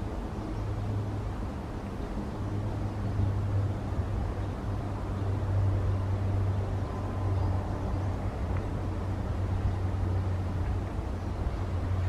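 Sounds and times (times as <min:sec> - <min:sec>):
distant road traffic rumble: 0:00.0 - 0:12.0.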